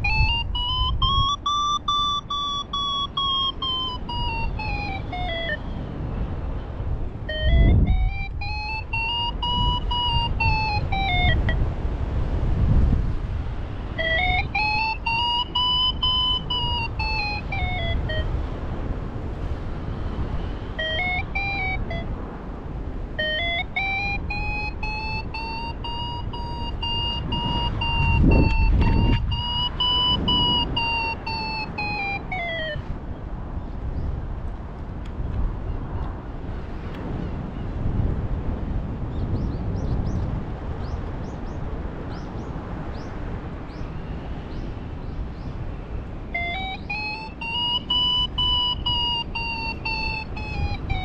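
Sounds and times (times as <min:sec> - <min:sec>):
variometer beeping: 0:00.0 - 0:05.7, 0:07.2 - 0:11.7, 0:13.9 - 0:18.4, 0:20.2 - 0:22.2, 0:23.1 - 0:32.9, 0:46.3 - 0:51.0
wind rumbling on microphone: 0:00.0 - 0:51.0.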